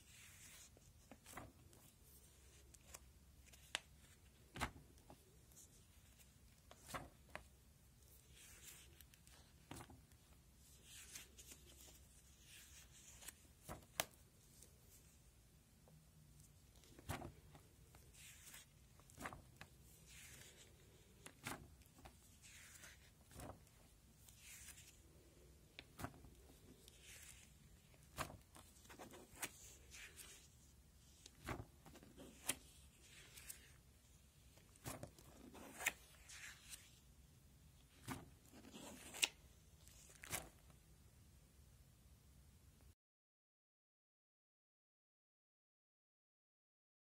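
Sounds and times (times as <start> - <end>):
plastic pages swishing: 0.0 - 7.5, 16.5 - 37.0, 37.9 - 40.6.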